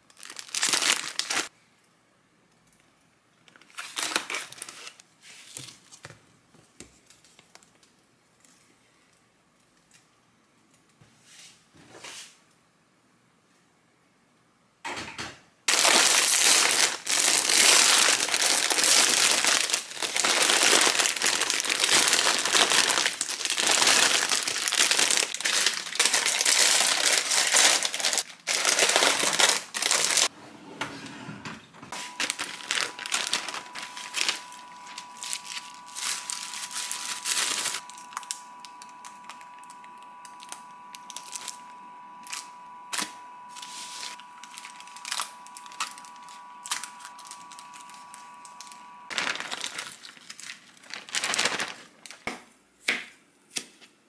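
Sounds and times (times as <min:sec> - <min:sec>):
plastic packaging crinkling: 0:00.0 - 0:01.5, 0:03.5 - 0:05.0, 0:15.7 - 0:30.3, 0:31.9 - 0:52.5
faint steady high tone: 0:31.9 - 0:49.1.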